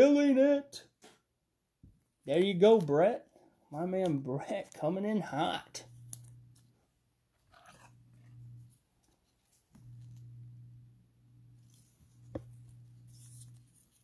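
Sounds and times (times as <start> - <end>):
low hum: 9.8 - 13.7.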